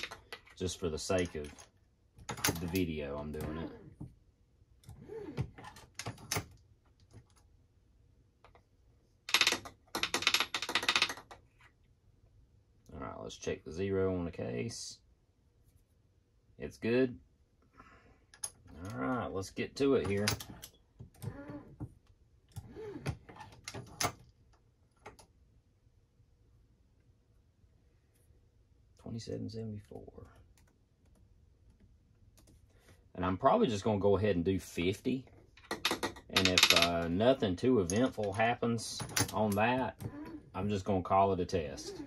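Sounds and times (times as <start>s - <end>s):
reloading press clicks and clacks: 9.3s - 11.4s, 35.6s - 37.2s.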